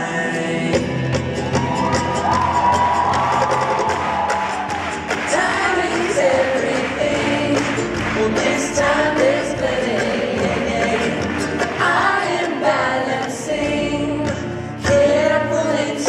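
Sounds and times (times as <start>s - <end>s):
voices singing together: 0.0s - 1.7s, 5.0s - 16.0s
live acoustic band playing: 0.0s - 16.0s.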